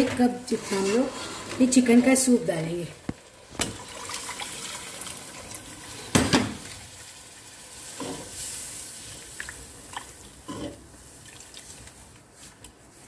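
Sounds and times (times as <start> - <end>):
spatula scraping a pot: 0.0 - 2.4
sauce sizzling: 2.3 - 12.2.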